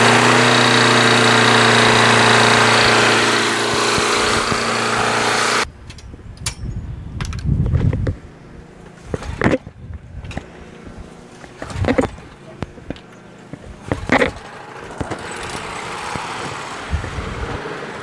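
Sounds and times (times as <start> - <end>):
lawn mower engine running: 0.0 - 5.7, 8.2 - 18.0
knocks and rustles: 8.8 - 17.6.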